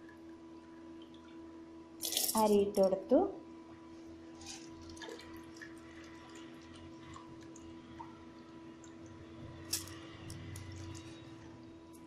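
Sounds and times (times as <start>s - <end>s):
faint steady hum: 0.0s - 12.0s
wet squishes and drips: 4.5s - 11.2s.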